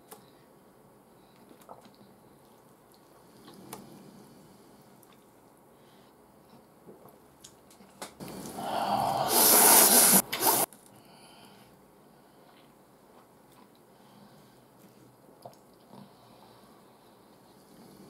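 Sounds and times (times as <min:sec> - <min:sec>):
faint chewing: 0:01.2 - 0:05.6, 0:12.3 - 0:18.0
person slurping noodles: 0:08.2 - 0:10.7.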